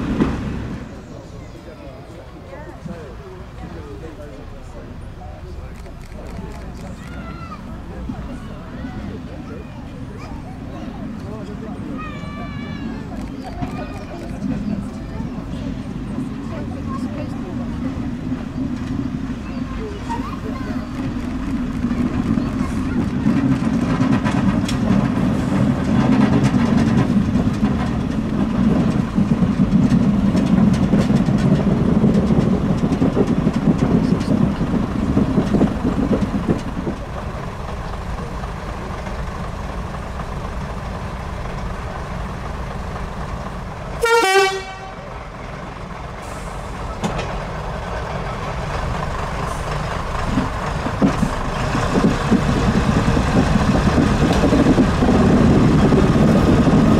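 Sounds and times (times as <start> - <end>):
diesel train engines running: 0.0 - 56.9.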